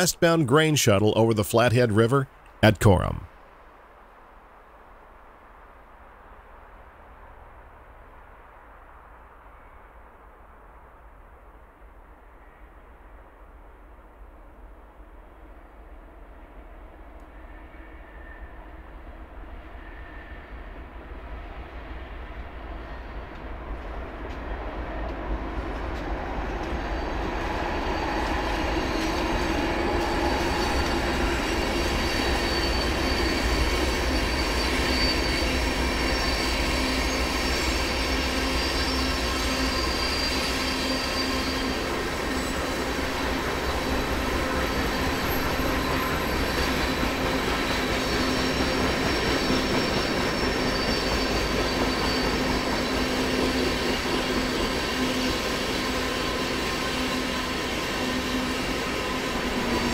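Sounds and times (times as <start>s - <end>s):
freight train rolling over bridge: 0.0s - 3.2s, 15.5s - 59.9s
high wheel squeal: 26.7s - 59.9s.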